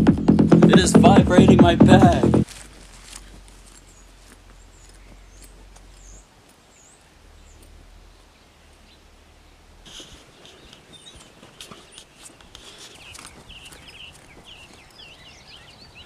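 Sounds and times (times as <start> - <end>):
small birds chirping: 0.0 - 16.0
bare feet crunching on gravel: 2.4 - 6.8, 10.1 - 15.6.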